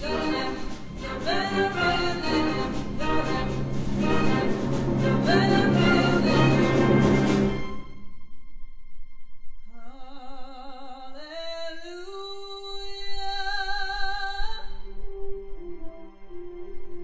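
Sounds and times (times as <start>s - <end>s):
woman singing with vibrato: 0.0s - 6.8s, 9.7s - 14.8s.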